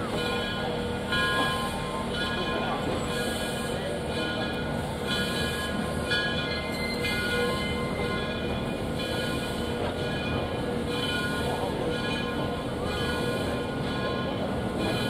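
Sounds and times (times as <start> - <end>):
locomotive bell ringing: 0.0 - 15.0
steam train rumbling: 0.0 - 15.0.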